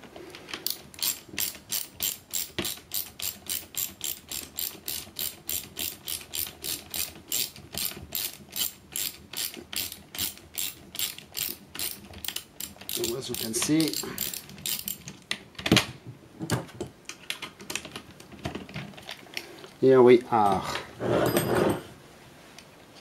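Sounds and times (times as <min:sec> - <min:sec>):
ratchet wrench clicking: 0:00.6 - 0:15.0.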